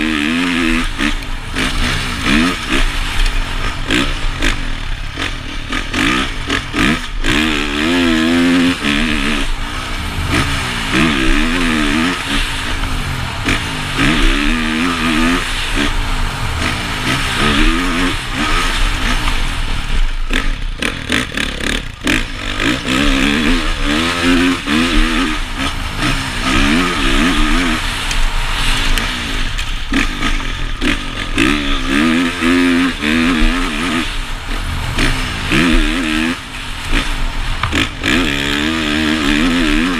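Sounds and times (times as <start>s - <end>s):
motocross bike engine revving: 0.0s - 39.9s.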